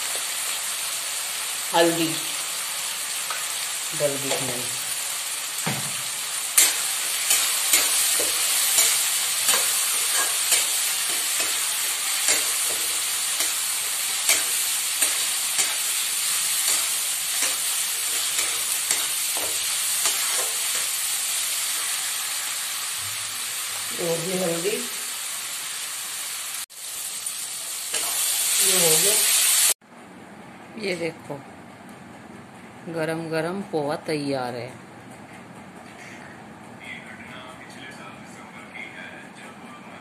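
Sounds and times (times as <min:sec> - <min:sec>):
onions sizzling in oil: 0:00.0 - 0:29.8
steel spatula scraping pan: 0:06.5 - 0:21.0.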